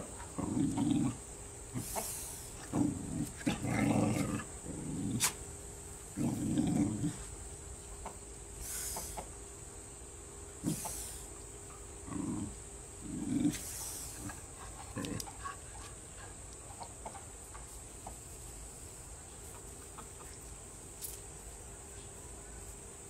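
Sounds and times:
faint steady hum: 0.0 - 23.0
faint ticks: 14.2 - 18.2.

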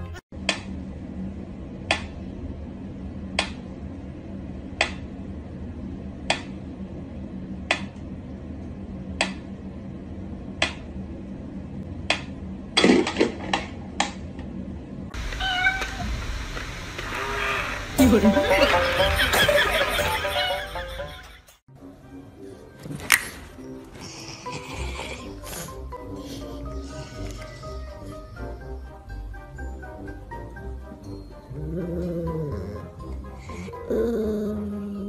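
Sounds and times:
cat calling: 15.2 - 16.3.

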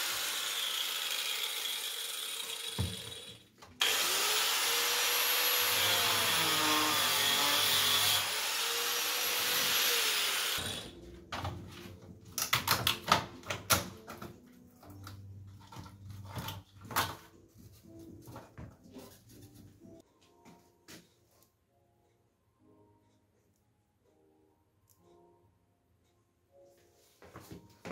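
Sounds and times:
angle grinder cutting plastic: 0.0 - 11.0.

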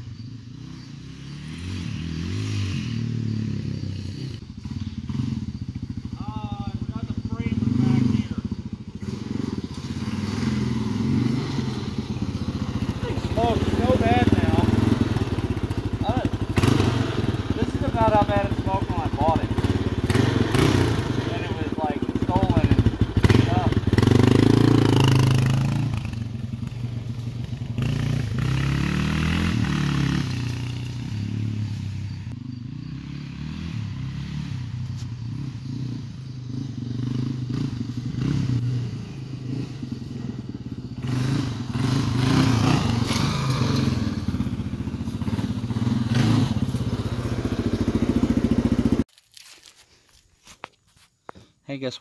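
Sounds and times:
motorcycle engine revving: 0.0 - 49.1.

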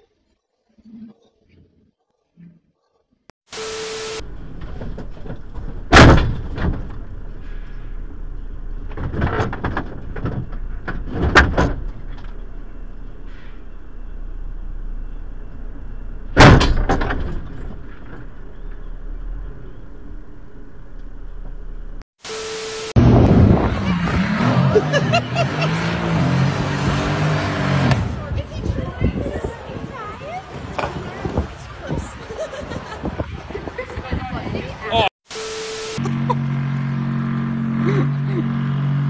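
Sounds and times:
sharp bangs: 3.5 - 21.5
car road noise on motorway: 4.2 - 22.0, 23.0 - 28.4.

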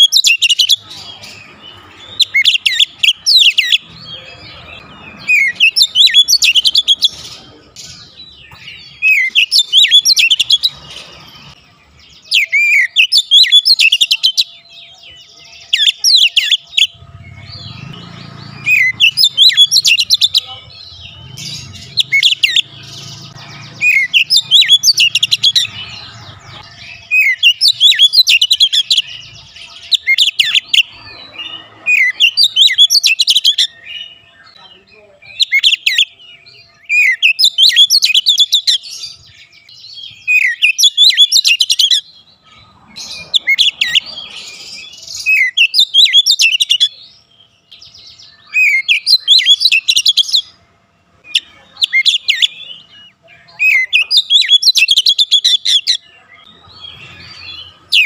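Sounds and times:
bird singing whistles and chirps: 0.0 - 10.8, 11.4 - 34.6, 35.3 - 50.6, 51.2 - 58.0.

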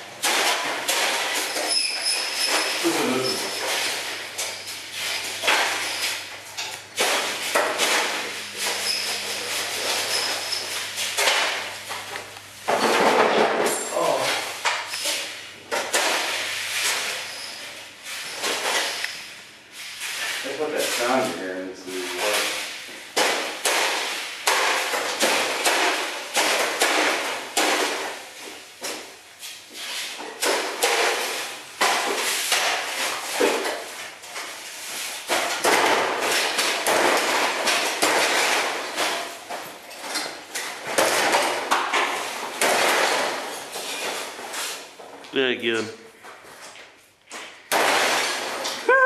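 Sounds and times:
sledgehammer hitting sheet metal: 0.2 - 6.2, 7.0 - 10.3, 22.1 - 28.2.

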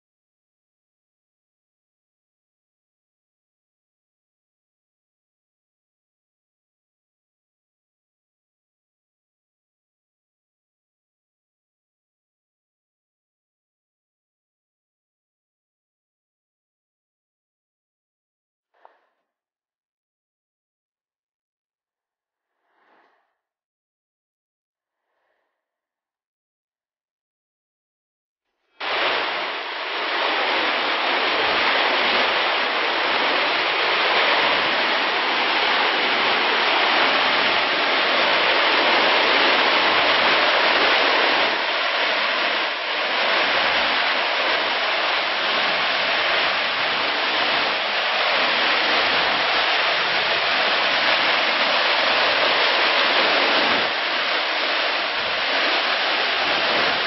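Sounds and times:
water rushing over rocks: 28.8 - 57.0.

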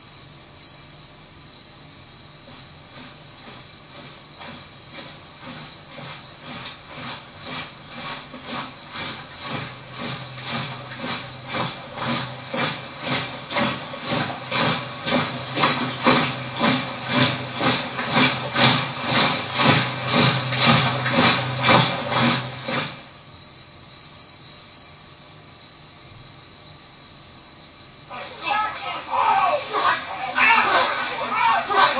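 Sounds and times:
crickets chirping: 0.0 - 31.9
rhythmic pulse: 3.0 - 23.2, 28.1 - 31.9
low hum: 5.5 - 23.0.

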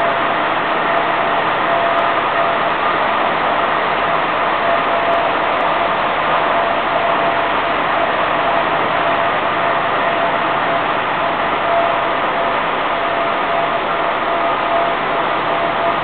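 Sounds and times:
vibrating filter running: 0.0 - 16.0.

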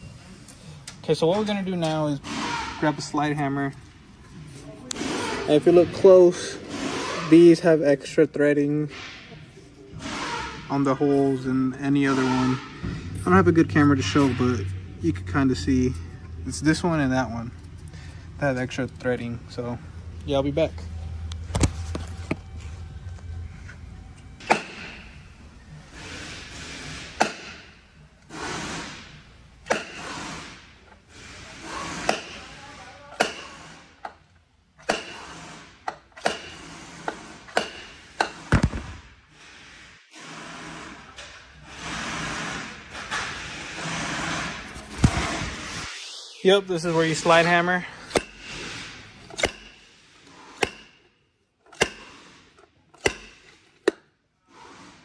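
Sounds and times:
slide hammer strikes: 24.4 - 25.2, 26.8 - 27.8, 28.5 - 30.4, 31.9 - 32.4, 33.2 - 34.2, 34.8 - 38.9, 48.1 - 48.7, 49.3 - 51.1, 51.7 - 52.3, 52.9 - 54.1
weight sliding along shaft: 39.3 - 51.0.

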